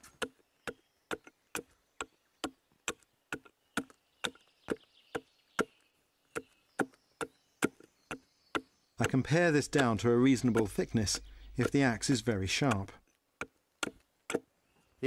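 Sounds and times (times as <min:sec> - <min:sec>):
axe chopping wood: 0:06.4 - 0:14.5.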